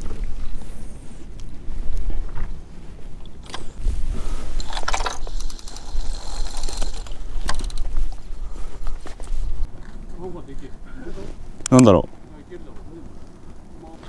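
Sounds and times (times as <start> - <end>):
wind rumble on microphone: 0.0 - 14.0
fishing reel ratcheting: 4.6 - 8.4.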